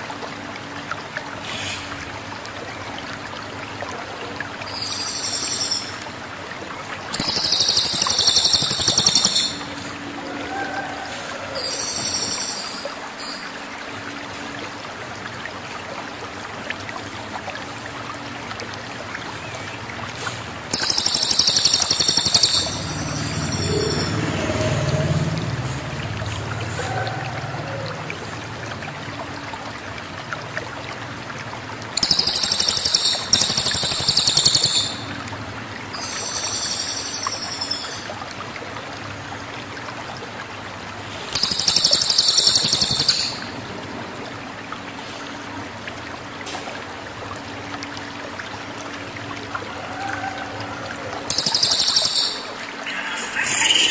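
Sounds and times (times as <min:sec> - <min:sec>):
songbird high-pitched song: 0:04.6 - 0:06.0, 0:07.2 - 0:09.7, 0:11.6 - 0:13.5, 0:32.0 - 0:35.1, 0:51.3 - 0:53.9.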